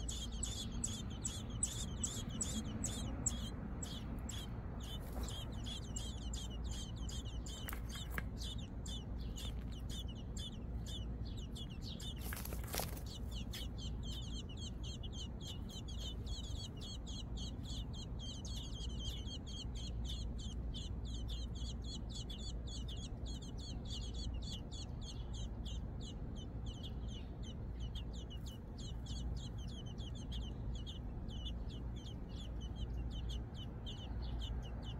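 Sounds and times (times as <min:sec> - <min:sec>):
nestlings peeping: 0:00.0 - 0:34.9
steady low hum: 0:00.0 - 0:34.9
rustle: 0:12.0 - 0:13.7.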